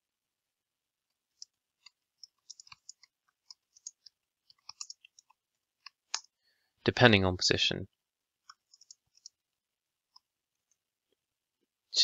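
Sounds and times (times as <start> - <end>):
keyboard typing clicks: 1.4 - 6.3, 8.5 - 9.4.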